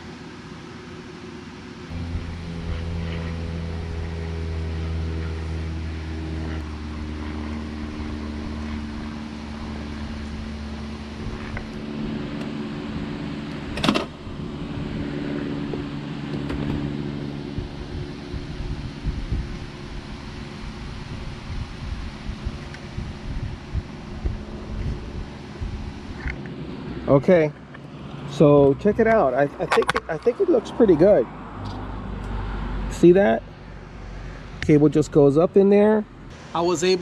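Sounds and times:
motor humming: 1.8s - 28.3s.

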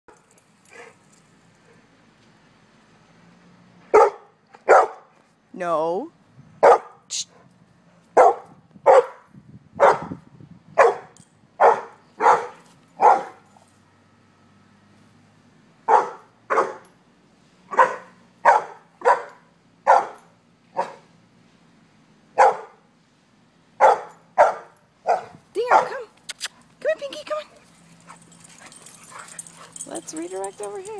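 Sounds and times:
dog barking: 3.9s - 5.1s, 6.6s - 7.0s, 8.2s - 10.1s, 10.8s - 13.4s, 15.9s - 16.8s, 17.7s - 20.2s, 20.8s - 21.1s, 22.4s - 22.8s, 23.8s - 26.1s.

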